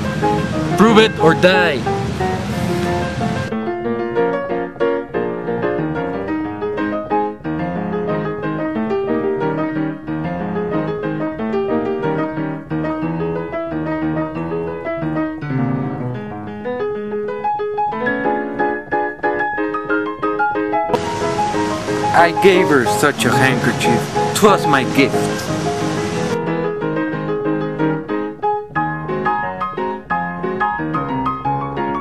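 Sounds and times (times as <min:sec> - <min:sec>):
piano playing quick notes: 0:00.0 - 0:07.2, 0:17.8 - 0:32.0.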